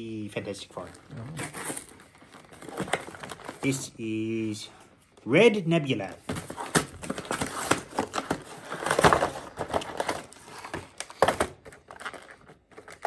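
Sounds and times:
cardboard and plastic crinkling: 0:00.8 - 0:03.9, 0:06.2 - 0:13.0.

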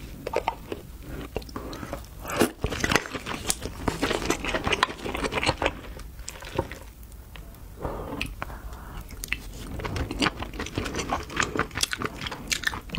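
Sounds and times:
chewing: 0:00.3 - 0:06.9, 0:08.1 - 0:12.9.

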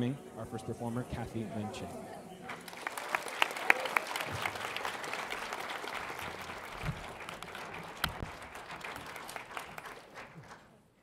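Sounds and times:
audience applauding: 0:02.4 - 0:10.9
loud close claps: 0:02.5 - 0:10.7.

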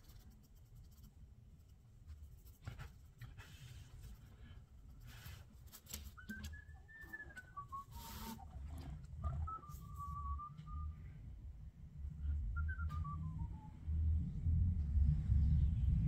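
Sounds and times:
brush scratching on paper: 0:00.0 - 0:06.2, 0:07.9 - 0:08.5
person whistling a tune: 0:06.2 - 0:08.5, 0:09.2 - 0:11.1, 0:12.4 - 0:13.8.

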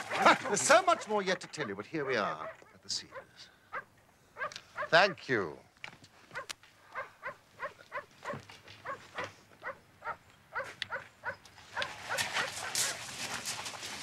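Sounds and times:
dog barking: 0:00.0 - 0:05.0, 0:06.4 - 0:13.0
footsteps crunching on gravel: 0:10.6 - 0:14.0.

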